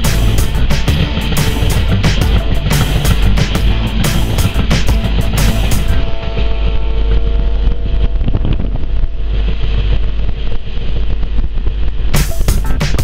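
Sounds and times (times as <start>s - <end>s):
vehicle motor running: 0.0s - 10.3s
steady droning tone: 0.0s - 13.0s
wind rumble on microphone: 0.0s - 13.0s.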